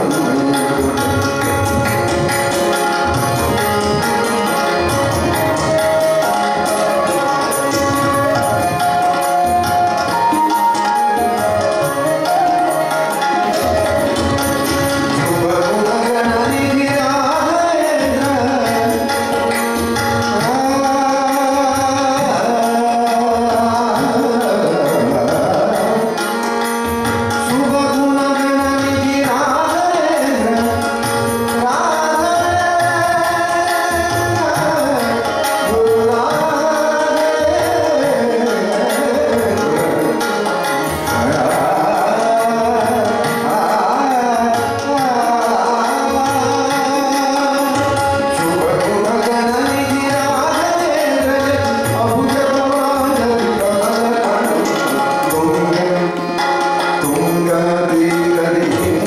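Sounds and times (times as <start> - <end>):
man singing: 0.0 - 2.8, 3.5 - 26.6, 27.3 - 59.0
harmonium: 0.0 - 59.0
tabla: 0.0 - 59.0
bamboo flute: 5.4 - 14.8.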